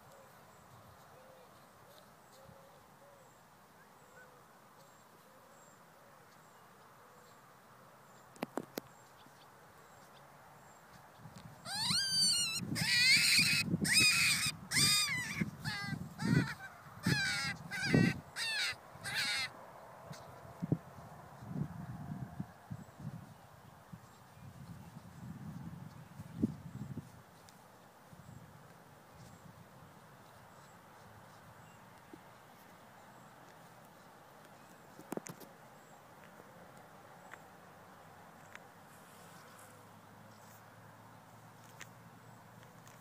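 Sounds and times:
rabbit screaming: 11.6s - 19.5s.

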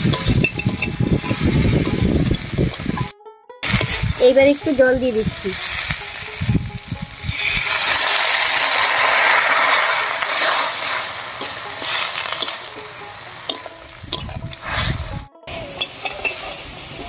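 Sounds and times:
water sizzling in a hot wok: 0.0s - 17.0s
wooden spatula scraping a pan: 7.3s - 15.2s.

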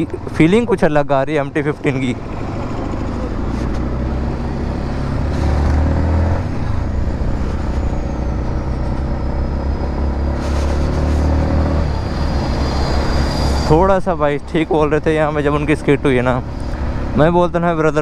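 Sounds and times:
motorcycle engine accelerating: 2.0s - 13.8s.

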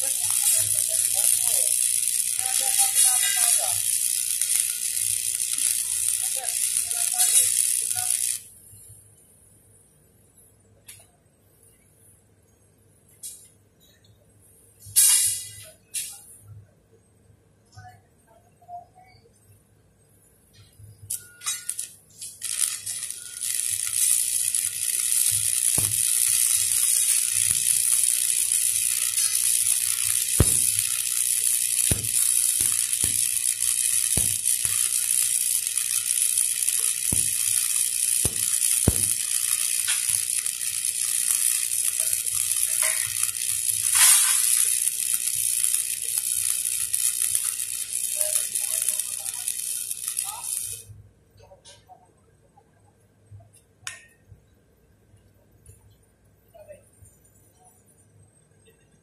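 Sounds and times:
welding arc sputters: 0.0s - 9.0s, 14.8s - 16.3s, 20.5s - 51.0s
welding arc crackling sizzle: 0.0s - 9.3s, 13.1s - 13.5s, 14.7s - 16.4s, 20.5s - 51.0s
sharp pops: 22.5s - 48.6s.

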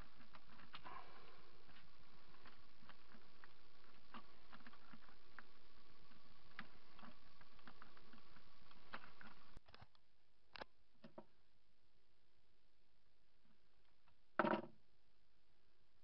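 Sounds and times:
steady background hiss: 0.0s - 9.6s.

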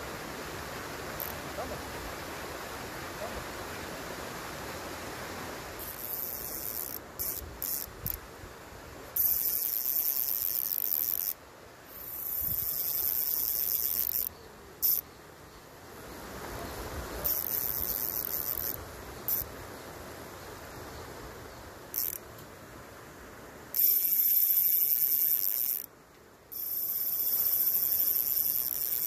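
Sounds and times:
fishing reel drag buzzing: 5.8s - 8.2s, 9.2s - 15.0s, 17.2s - 19.5s, 21.9s - 22.2s, 23.7s - 25.9s, 26.5s - 29.0s.

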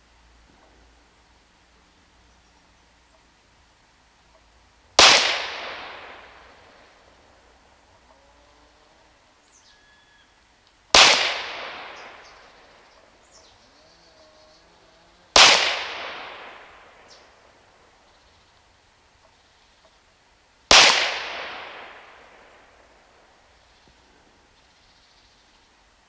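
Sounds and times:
air pistol shots echoing: 5.0s - 6.8s, 10.9s - 12.6s, 15.4s - 17.3s, 20.7s - 22.7s.

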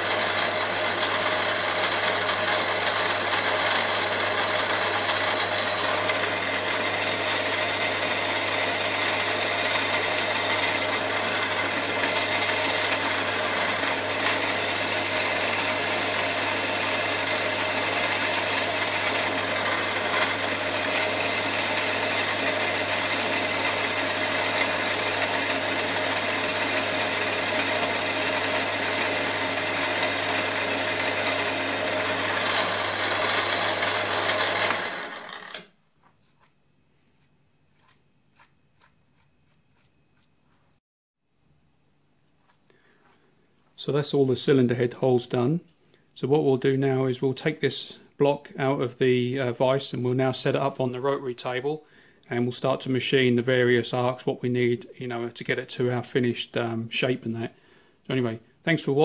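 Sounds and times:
milling machine drilling metal: 0.0s - 35.6s.

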